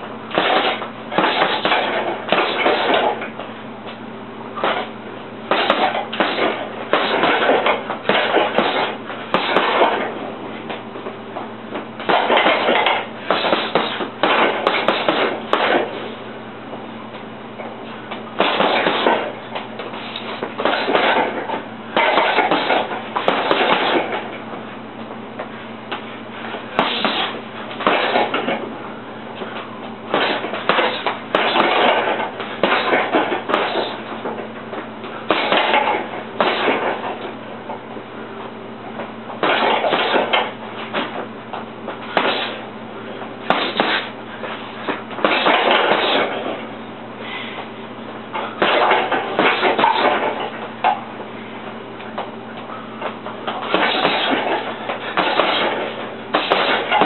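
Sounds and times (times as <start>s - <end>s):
steady low hum: 0.0s - 57.0s
gloves punching heavy bag: 0.3s - 3.4s, 5.5s - 10.2s, 12.0s - 16.1s, 18.2s - 24.4s, 26.7s - 28.7s, 29.4s - 34.4s, 35.2s - 37.2s, 39.4s - 41.2s, 41.9s - 42.7s, 43.4s - 46.6s, 48.4s - 51.0s, 53.0s - 57.0s.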